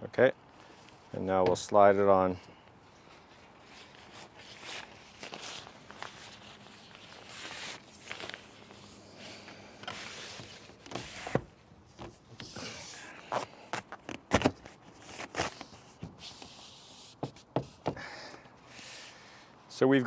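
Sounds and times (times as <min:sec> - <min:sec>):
nylon cover rustling and scraping: 0:03.2 - 0:11.5, 0:12.1 - 0:17.4.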